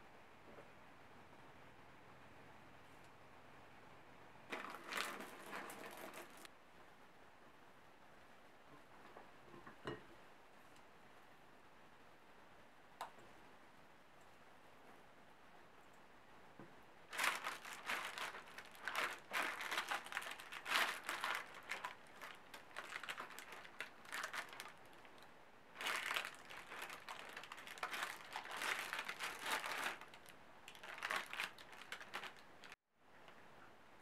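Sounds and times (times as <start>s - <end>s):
parchment paper crinkling: 4.5s - 6.5s, 17.1s - 25.2s, 25.8s - 32.8s.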